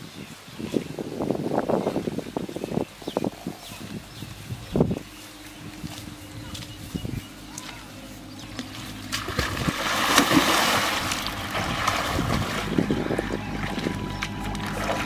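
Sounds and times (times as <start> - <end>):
water splashing and sloshing: 3.8 - 15.0.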